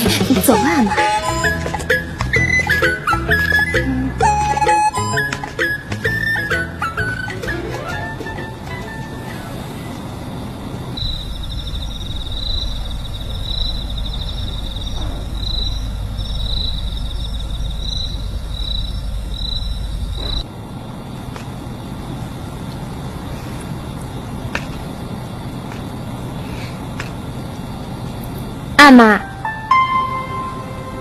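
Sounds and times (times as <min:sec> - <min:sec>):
crickets chirping: 0:00.0 - 0:31.0
low rumble of night ambience: 0:00.0 - 0:31.0
steady hum: 0:08.2 - 0:31.0.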